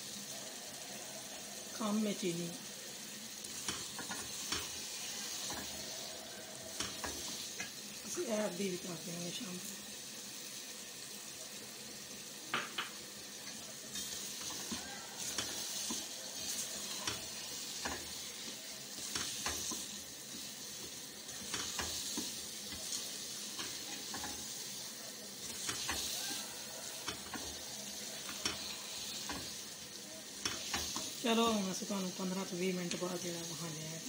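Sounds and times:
carrots sizzling in a pan: 0:00.0 - 0:34.0
spatula tapping on a pan: 0:03.6 - 0:04.8, 0:05.4 - 0:05.8, 0:06.7 - 0:07.8, 0:12.5 - 0:13.0, 0:14.4 - 0:23.0, 0:23.6 - 0:24.4, 0:25.5 - 0:26.2, 0:27.0 - 0:27.6, 0:28.2 - 0:29.6, 0:30.4 - 0:31.2
spatula scraping a pan: 0:13.4 - 0:29.7, 0:30.3 - 0:31.2.

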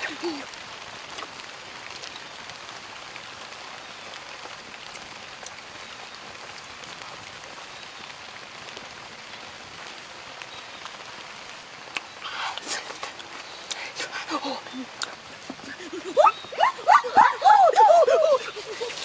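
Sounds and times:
wood fire pops and crackles: 0:00.0 - 0:11.0.

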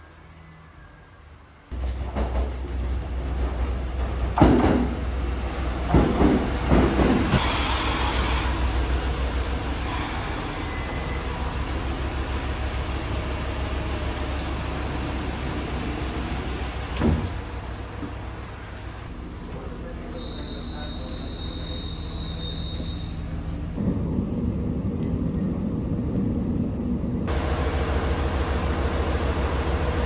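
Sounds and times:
train rumbling on rails: 0:00.0 - 0:30.0
train clattering: 0:01.8 - 0:24.0.

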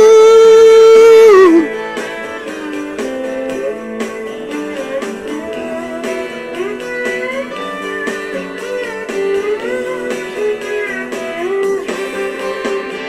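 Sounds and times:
chords and steady beat: 0:00.0 - 0:13.0
lead guitar with bending notes: 0:00.0 - 0:13.0.

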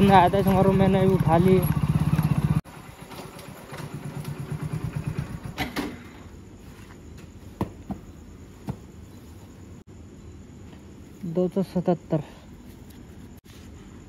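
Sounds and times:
motorcycle engine running: 0:00.0 - 0:05.6.

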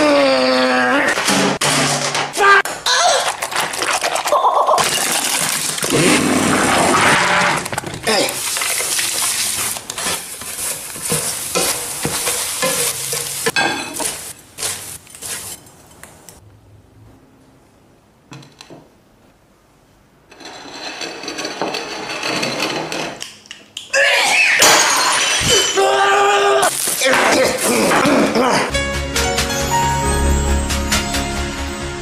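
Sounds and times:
spoon stirring and scraping dish: 0:07.7 - 0:16.1
spatula scraping onto plate: 0:08.8 - 0:15.8.

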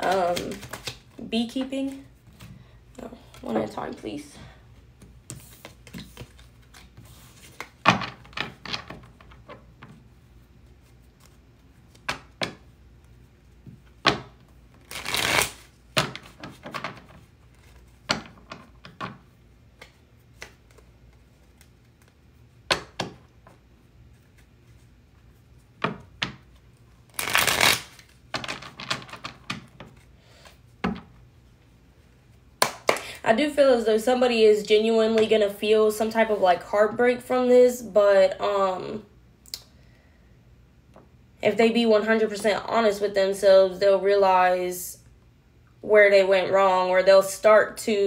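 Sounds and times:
cards clicking and tapping: 0:00.0 - 0:01.1
cards rustling when shuffled: 0:00.0 - 0:02.5, 0:05.0 - 0:09.6, 0:14.7 - 0:18.5, 0:26.6 - 0:30.6.

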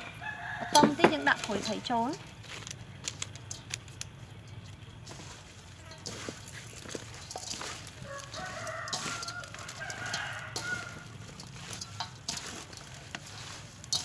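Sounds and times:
rooster crowing: 0:00.0 - 0:01.1, 0:07.8 - 0:12.0
hands tossing fish in steel bowl: 0:00.7 - 0:14.0.

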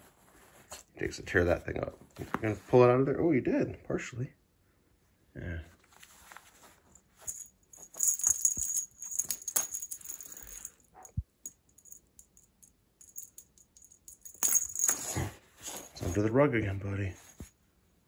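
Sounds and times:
wand toy rattling and jingling: 0:07.2 - 0:16.2.

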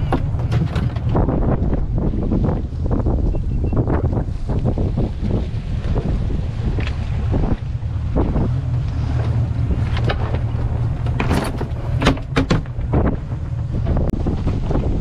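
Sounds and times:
gear knocking and clattering: 0:00.0 - 0:01.3
wind buffeting microphone: 0:00.0 - 0:15.0.

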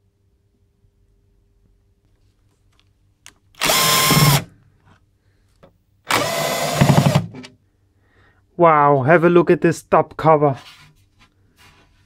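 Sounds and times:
cordless drill motor whine: 0:03.6 - 0:04.5, 0:06.1 - 0:07.3.

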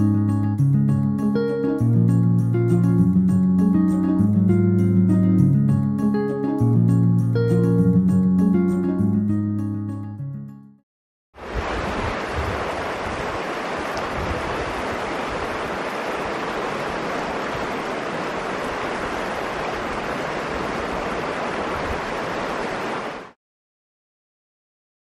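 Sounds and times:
river rushing over rocks: 0:11.4 - 0:23.4.

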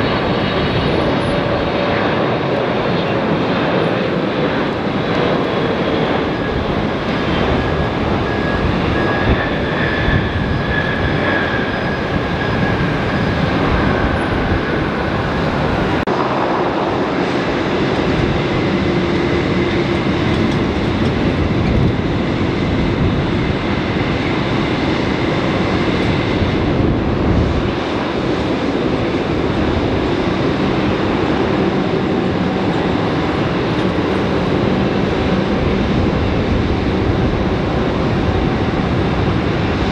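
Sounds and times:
jet engines rumbling on landing: 0:00.0 - 0:39.9
jet engines taxiing with low hum: 0:00.0 - 0:39.9.

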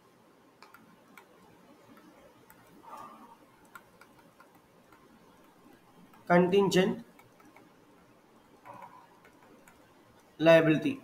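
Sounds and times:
stylus tapping on tablet screen: 0:00.6 - 0:06.3, 0:07.0 - 0:10.0.

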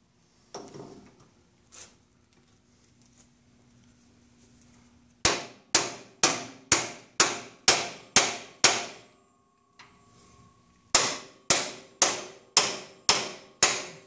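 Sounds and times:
hammer striking metal tool: 0:05.3 - 0:09.1, 0:10.9 - 0:14.0.

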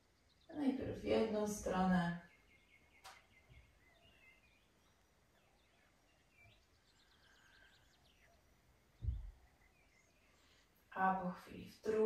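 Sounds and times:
soft low thump: 0:09.0 - 0:09.4.

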